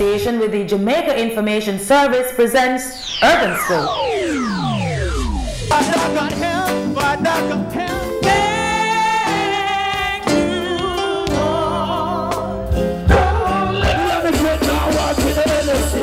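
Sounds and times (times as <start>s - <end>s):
person singing with vibrato: 5.7s - 16.0s.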